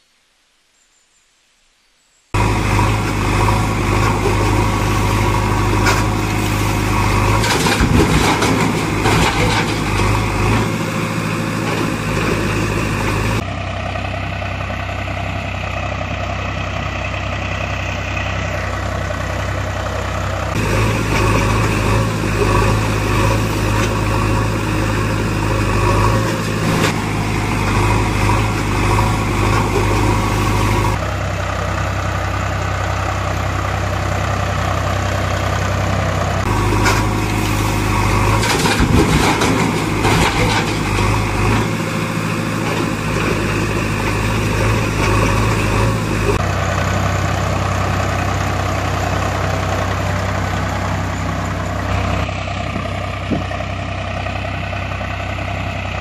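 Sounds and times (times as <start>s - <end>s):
engine idling: 2.4s - 56.0s.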